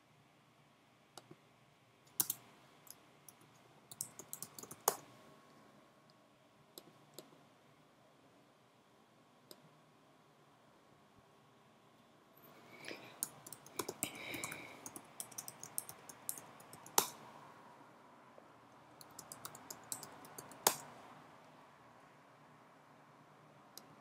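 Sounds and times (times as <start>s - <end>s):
typing on keyboard: 2.1s - 2.4s, 3.3s - 5.1s, 13.2s - 17.2s, 19.0s - 20.9s.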